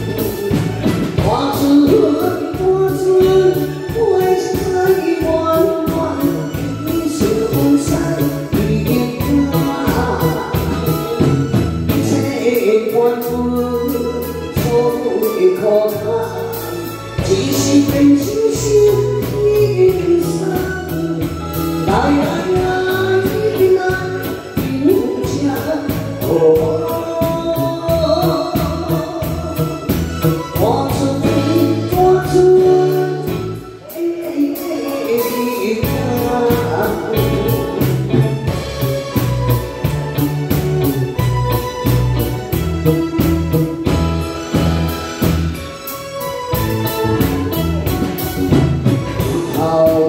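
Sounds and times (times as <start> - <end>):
live band playing: 0.0 - 50.0
woman singing into a microphone: 1.2 - 11.3, 11.9 - 38.0.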